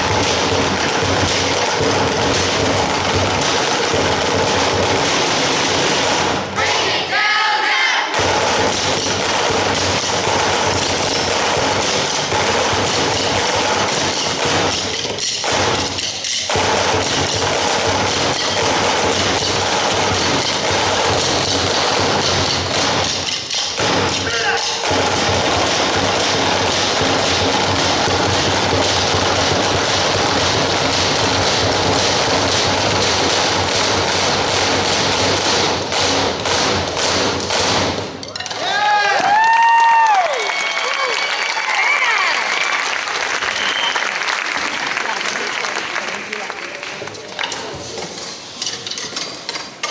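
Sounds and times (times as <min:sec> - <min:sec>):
drumsticks beating plastic chairs: 0:08.1 - 0:40.3
drumsticks clattering on plastic chairs: 0:47.3 - 0:49.9.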